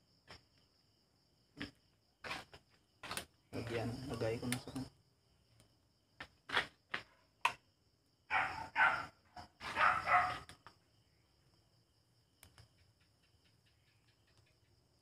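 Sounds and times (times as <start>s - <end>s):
dog barking: 8.3s - 10.5s.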